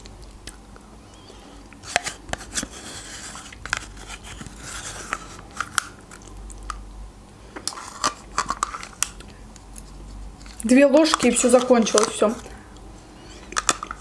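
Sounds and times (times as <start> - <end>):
lip and mouth eating sounds: 0.0 - 1.9.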